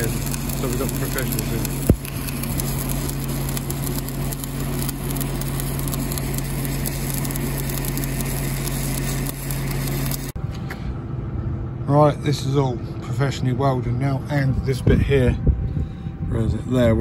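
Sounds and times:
welding arc crackling: 0:00.0 - 0:10.4
low hum: 0:00.0 - 0:17.0.

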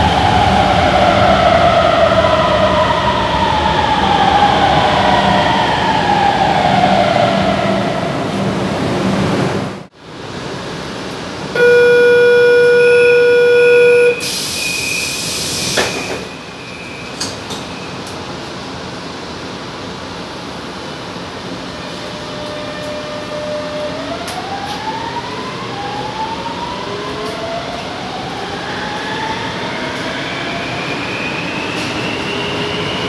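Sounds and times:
beeping: 0:11.6 - 0:15.0
door warning tone: 0:11.6 - 0:15.0
train doors hissing shut: 0:14.1 - 0:18.3.

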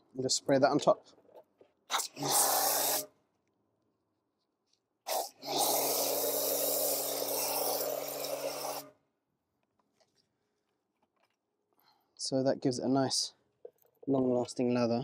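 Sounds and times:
sprayer hissing: 0:02.0 - 0:03.0, 0:05.1 - 0:08.9.

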